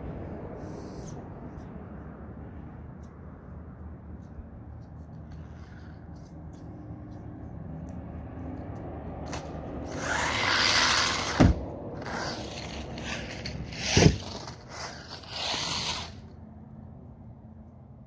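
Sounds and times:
tyres skidding on concrete: 9.2s - 16.3s.

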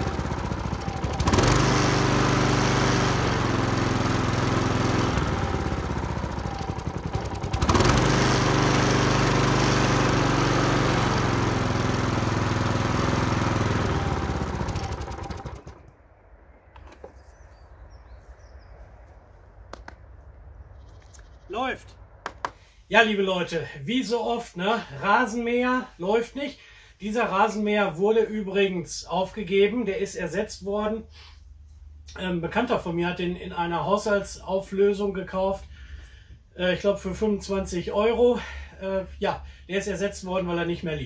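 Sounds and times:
lawn mower engine running: 0.0s - 16.0s.

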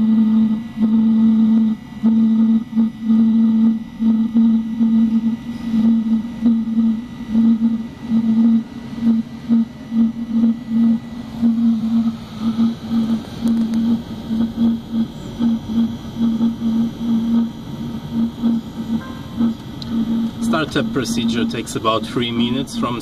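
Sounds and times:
heater burner and blower hum: 0.0s - 23.0s.

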